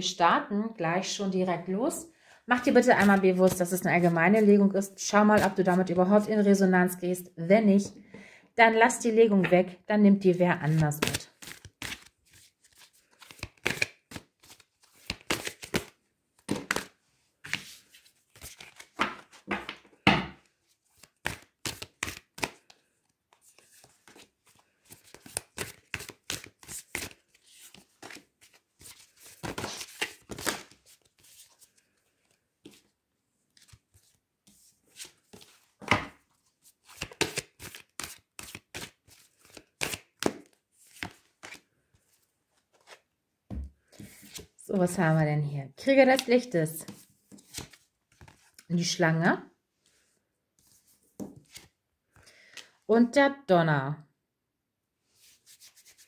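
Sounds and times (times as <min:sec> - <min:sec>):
cards being shuffled: 0:10.7 - 0:19.9, 0:20.9 - 0:32.9, 0:33.5 - 0:42.1, 0:46.9 - 0:48.7, 0:50.6 - 0:51.7, 0:55.2 - 0:56.0.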